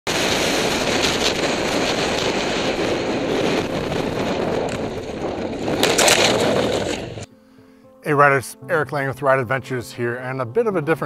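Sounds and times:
motorcycle engine: 0:00.1 - 0:07.3
tyres on gravel road: 0:00.1 - 0:07.3
wind rush over microphone: 0:00.1 - 0:07.3.

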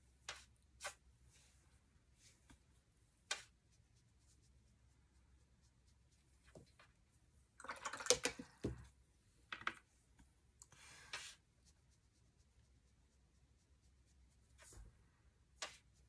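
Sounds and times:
brush scrubbing paint: 0:03.3 - 0:06.7, 0:10.8 - 0:14.9.

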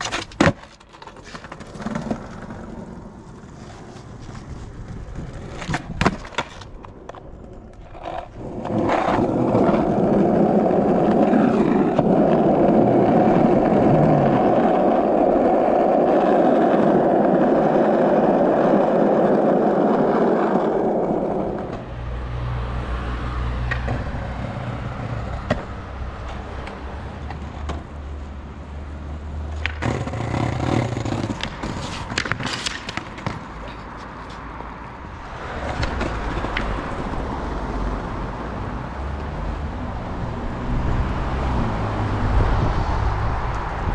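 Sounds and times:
skateboard clacking on ground: 0:00.0 - 0:21.9, 0:23.6 - 0:27.9, 0:29.4 - 0:37.5
skateboard wheels rolling on pavement: 0:00.0 - 0:43.9.

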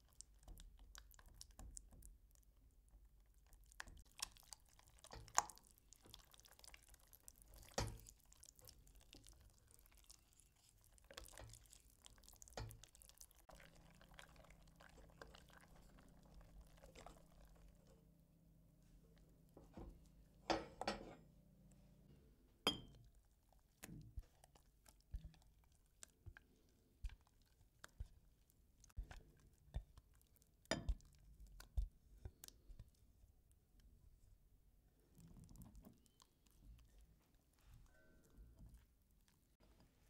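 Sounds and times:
whisk wires ticking on pot: 0:00.0 - 0:17.9, 0:24.0 - 0:33.0
whisk stirring thick cream: 0:03.8 - 0:17.9, 0:23.6 - 0:33.2.

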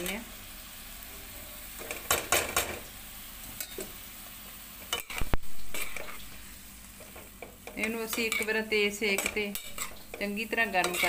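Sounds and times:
vegetables sizzling in hot oil: 0:00.0 - 0:11.0
utensils clattering against pan: 0:07.0 - 0:11.0.

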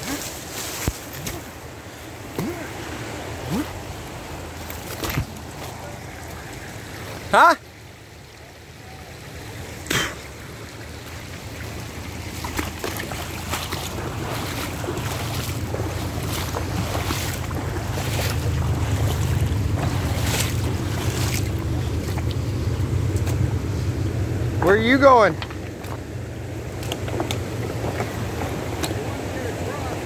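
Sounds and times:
creek rushing over rocks: 0:00.0 - 0:30.0
wind buffeting microphone: 0:11.8 - 0:24.6.

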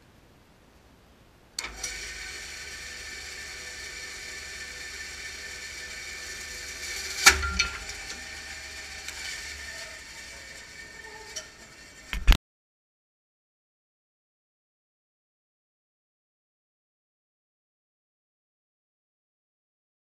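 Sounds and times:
bandsaw running with whine: 0:01.6 - 0:12.4.

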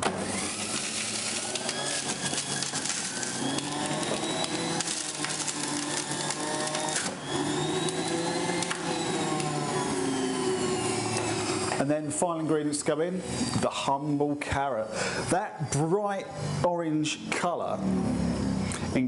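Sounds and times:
juicer motor whine: 0:00.0 - 0:11.8, 0:13.2 - 0:13.6, 0:17.8 - 0:19.0.

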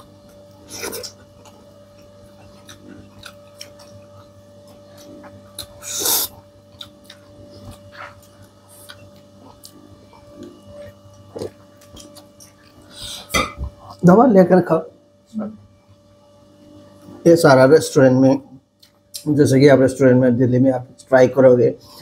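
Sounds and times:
steady low hum: 0:00.0 - 0:22.0
chewing and mouth clicks: 0:00.2 - 0:12.9, 0:18.8 - 0:19.2.

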